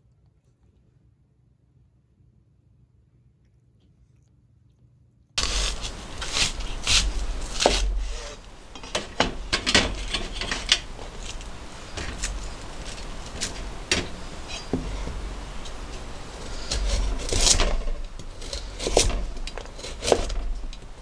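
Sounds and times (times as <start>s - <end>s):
low steady hum: 0.0s - 21.0s
knife on plastic cutting board: 5.4s - 15.8s, 16.4s - 20.8s
food knocking on steel tray: 5.4s - 20.9s.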